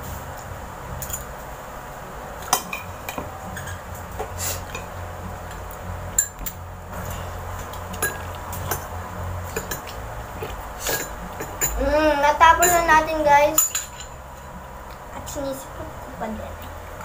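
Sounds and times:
low steady hum: 0.0 - 17.0
metal spoon clinking on plate: 13.6 - 14.2.

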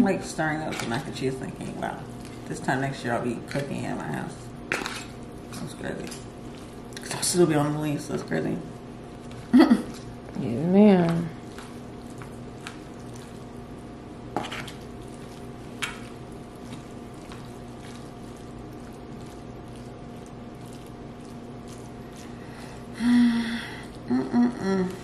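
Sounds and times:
fork squishing macaroni: 4.6 - 7.3, 11.3 - 23.0.

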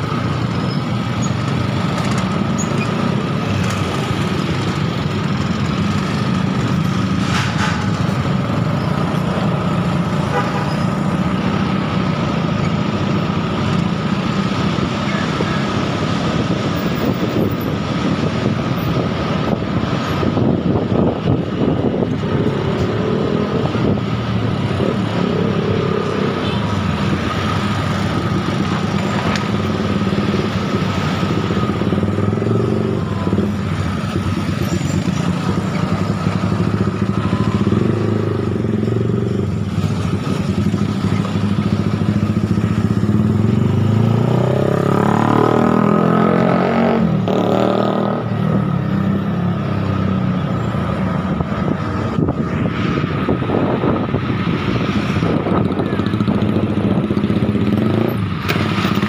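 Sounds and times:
traffic noise: 0.0 - 59.0
wind: 0.0 - 59.0
motorcycle engine running: 55.2 - 59.0.

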